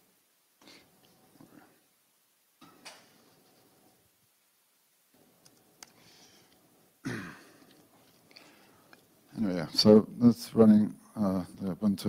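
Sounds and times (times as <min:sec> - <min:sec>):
soft breathing on microphone: 0:06.0 - 0:06.7, 0:08.2 - 0:09.0.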